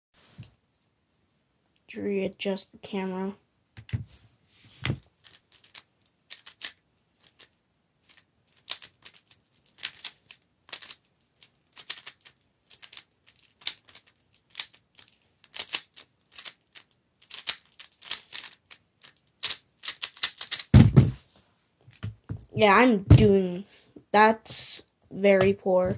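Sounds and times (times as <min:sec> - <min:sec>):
puzzle cube layers clacking: 0:04.8 - 0:21.2.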